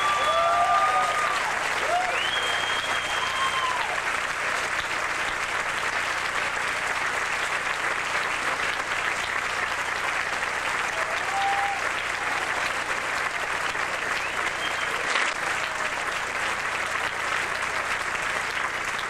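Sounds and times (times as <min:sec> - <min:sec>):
audience cheering: 0:00.0 - 0:04.4, 0:10.6 - 0:17.6
audience applauding: 0:00.0 - 0:19.0.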